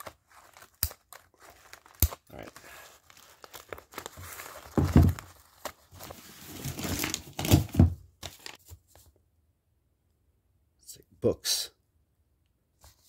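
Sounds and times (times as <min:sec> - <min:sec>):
parcel wrapping crinkling and tearing: 0:00.0 - 0:08.7
box thumps: 0:04.7 - 0:05.3.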